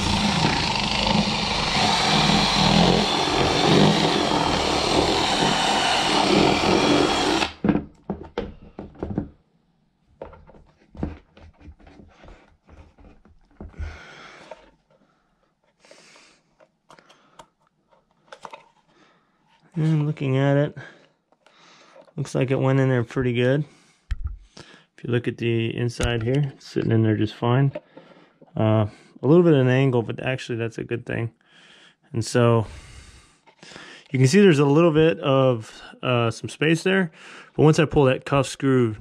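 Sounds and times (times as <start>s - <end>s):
cordless drill boring into plastic: 0.0s - 7.8s.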